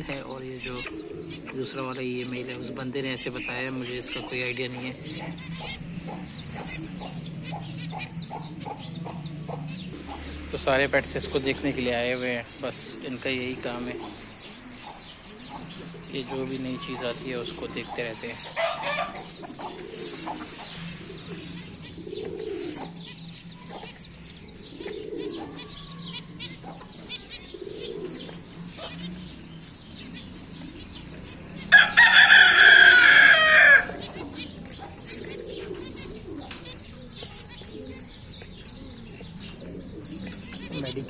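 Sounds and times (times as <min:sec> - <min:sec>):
small birds chirping: 0:00.0 - 0:41.0
low cooing: 0:18.4 - 0:32.2, 0:32.8 - 0:40.8
rooster crowing: 0:31.7 - 0:34.0.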